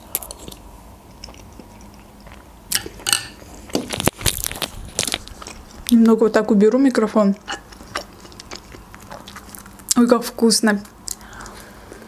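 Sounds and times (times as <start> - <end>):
quiet chewing and swallowing: 7.4 - 10.0, 11.0 - 12.0.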